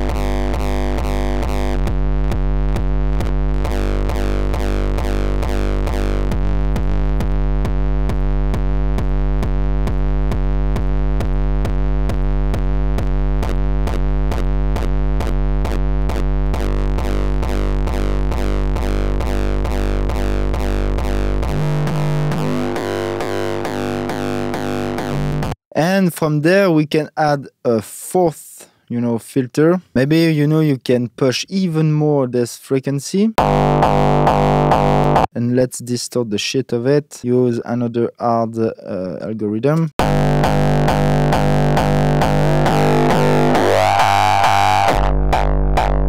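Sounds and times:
distorted kick drum loop: 0.0 - 25.6, 33.4 - 35.3, 40.0 - 46.0.

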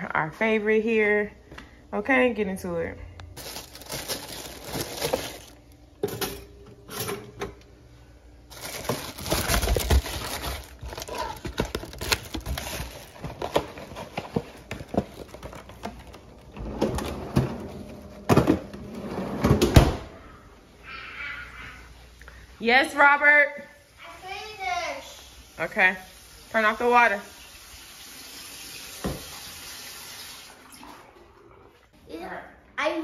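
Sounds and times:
box and wrapper crinkling: 3.4 - 5.8, 8.5 - 16.5.

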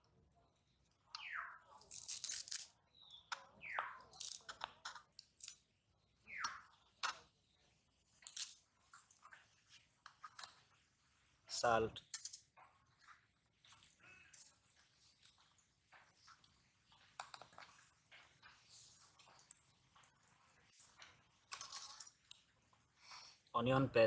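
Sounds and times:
herbs crunching under blade: 1.7 - 2.8, 3.9 - 5.7.

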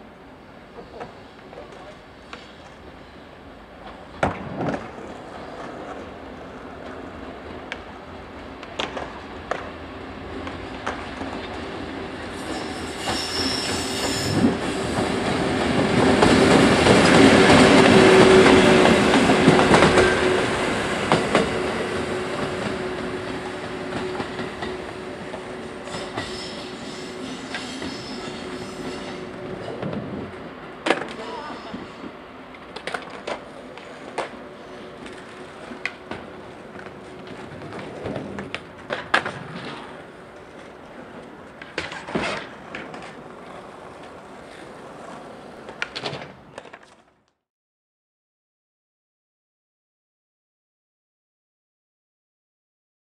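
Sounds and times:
train rolling rumble: 3.5 - 46.0
rail joint clicks: 8.6 - 9.7, 10.4 - 11.6, 12.6 - 20.2, 30.8 - 34.4.

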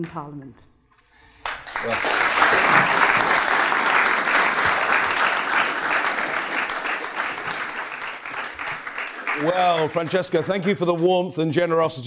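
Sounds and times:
audience applauding: 1.4 - 11.6.

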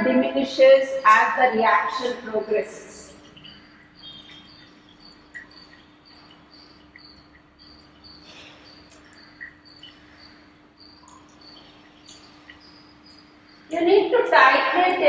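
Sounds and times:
steady low hum: 0.0 - 15.0
faint high chirp: 0.4 - 15.0.

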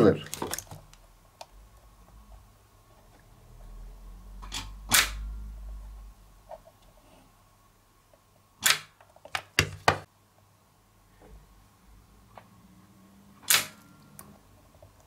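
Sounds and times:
spot welder snaps: 8.6 - 8.9.

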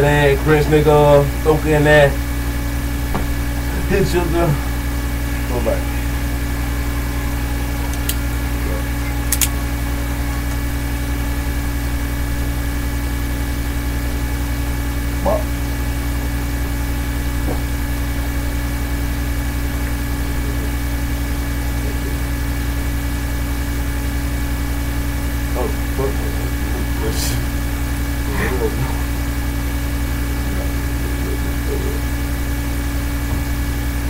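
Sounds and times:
steady low hum: 0.0 - 34.0
sharp click: 9.3 - 9.6.

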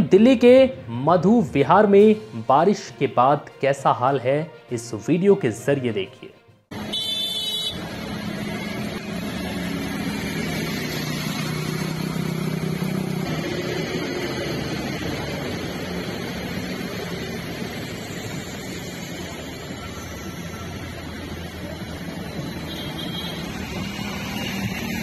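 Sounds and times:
bus engine running: 6.7 - 25.0.

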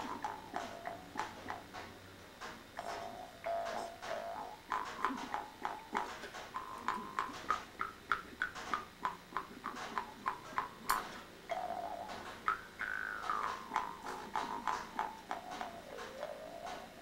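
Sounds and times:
mouth harp twanging: 2.8 - 17.0
sharp click: 10.9 - 11.2.

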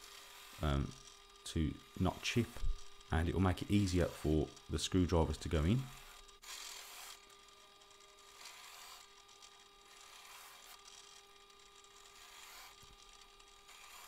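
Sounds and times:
drill press humming: 0.0 - 14.0
drill bit cutting into plywood: 5.7 - 14.0.

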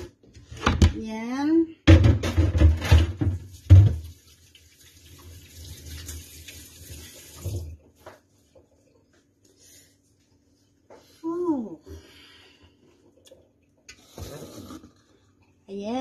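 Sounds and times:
tap running into sink: 2.8 - 4.2.

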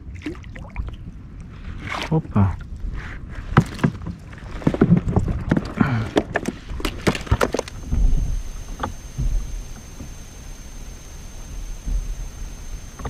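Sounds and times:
fish flapping against plastic deck: 3.6 - 8.2.

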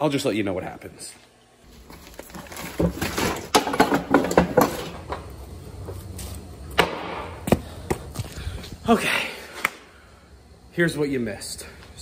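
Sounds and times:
low steady hum: 0.0 - 12.0
footsteps and handling on hard floor: 1.7 - 6.5.

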